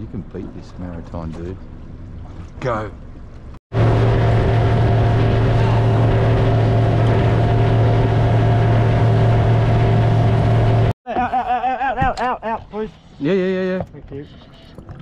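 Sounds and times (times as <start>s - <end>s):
boat motor running: 1.0s - 11.0s.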